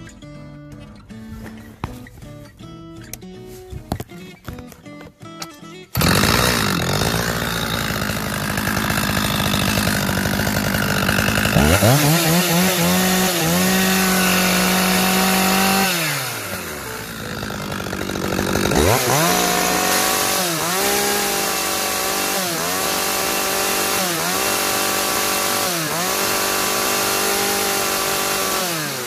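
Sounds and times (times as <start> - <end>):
chainsaw engine revving: 5.9 - 29.0.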